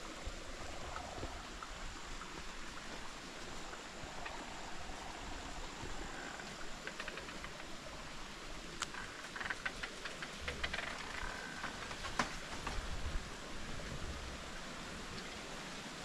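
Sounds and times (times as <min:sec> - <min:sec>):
stream trickling over rocks: 0:00.0 - 0:16.0
sharp crackles: 0:08.8 - 0:12.8.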